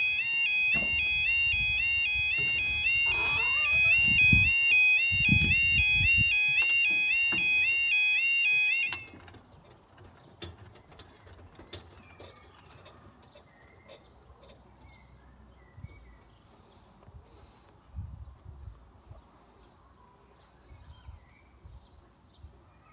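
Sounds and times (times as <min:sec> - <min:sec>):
level crossing two-tone alarm: 0:00.0 - 0:09.2.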